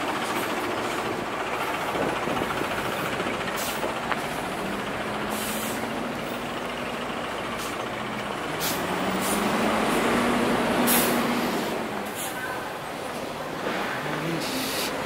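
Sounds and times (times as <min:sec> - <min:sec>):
bus and truck engine hum: 0:00.0 - 0:15.0
air brakes hissing: 0:03.6 - 0:03.9, 0:05.2 - 0:06.0, 0:08.6 - 0:09.6, 0:10.8 - 0:12.6, 0:13.6 - 0:15.0.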